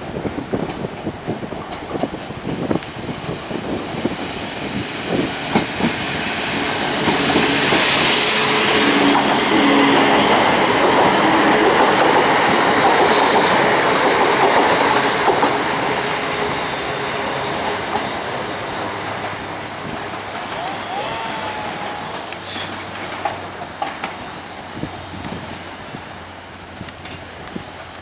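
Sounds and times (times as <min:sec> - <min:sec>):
train rushing past: 0:00.0 - 0:28.0
wheels clicking over rail joints: 0:22.2 - 0:28.0.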